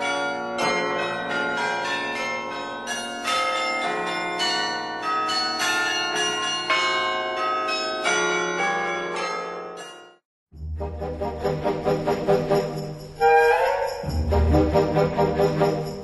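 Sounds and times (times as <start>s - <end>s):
bells ringing: 0.0s - 16.0s.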